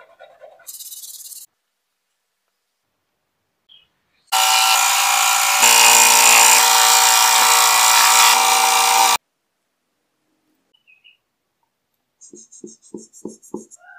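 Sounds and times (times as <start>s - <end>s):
scroll saw buzzing: 4.3s - 9.2s.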